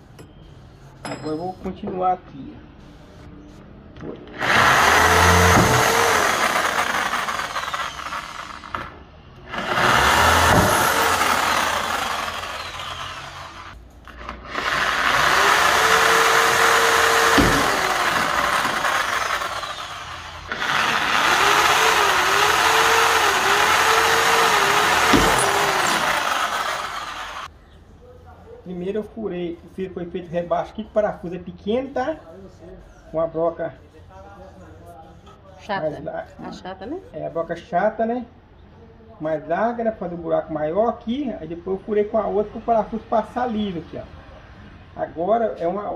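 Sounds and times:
electric drill boring into wood: 4.3s - 27.5s.

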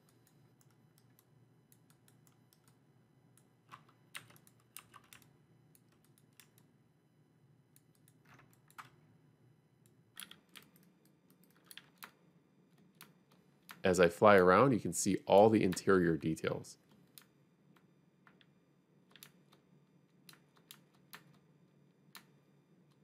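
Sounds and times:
keyboard and mouse clicks: 0.0s - 2.8s, 3.4s - 6.7s, 7.8s - 9.0s, 10.2s - 13.9s, 16.9s - 21.5s, 22.1s - 23.0s.

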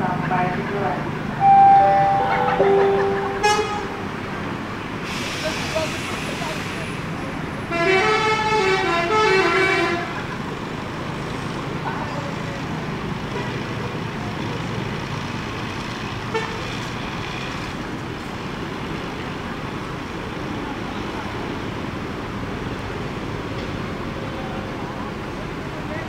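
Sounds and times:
traffic noise: 0.0s - 26.0s
bus horn blasts: 1.4s - 4.2s, 7.7s - 10.2s, 16.3s - 16.6s.

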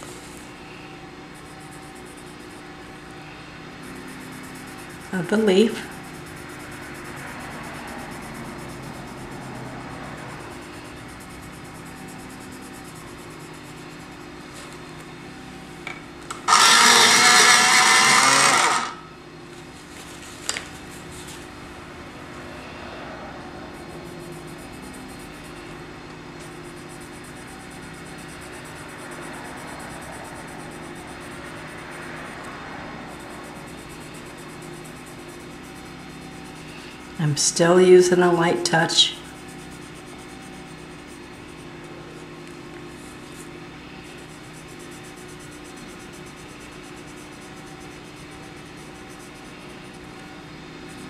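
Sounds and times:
small electric motor running: 0.0s - 19.2s, 22.2s - 51.0s
low background hum: 0.0s - 51.0s.

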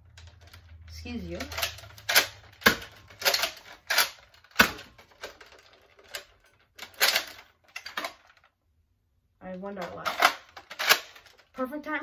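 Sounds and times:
toy blaster priming clacks: 1.4s - 8.1s.

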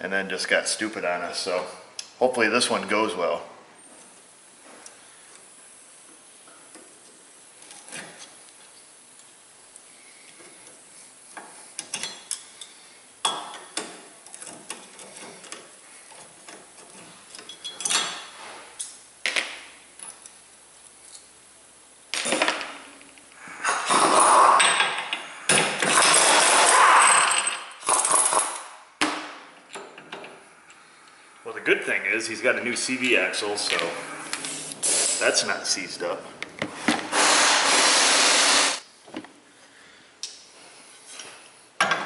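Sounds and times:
impact wrench bursts: 23.8s - 28.7s, 37.0s - 38.8s.

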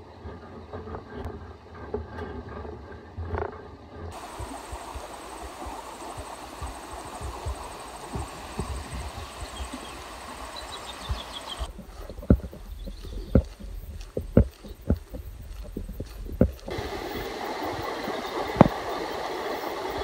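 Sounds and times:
low thumps: 11.0s - 17.2s
microphone handling rumble: 11.1s - 17.3s.

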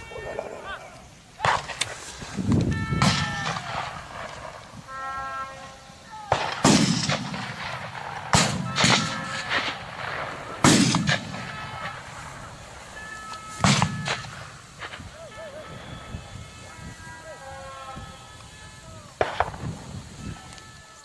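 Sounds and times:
rifle shots echoing: 1.4s - 2.0s, 2.9s - 16.1s, 19.1s - 20.0s.

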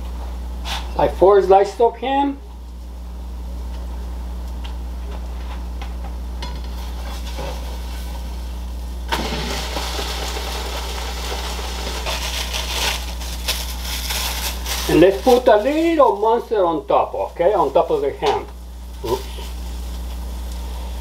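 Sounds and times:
steady low hum: 0.0s - 21.0s
frying sizzle: 6.4s - 21.0s.

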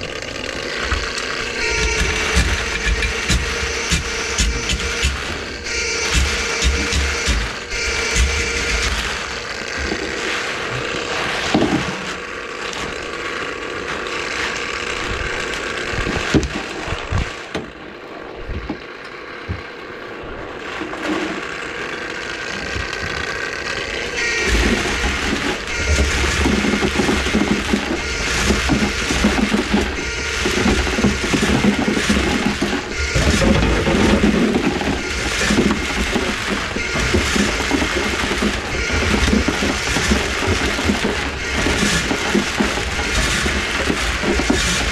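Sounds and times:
drain cleaning machine running: 0.0s - 44.9s
steel cable rattling in drain: 24.2s - 44.9s.

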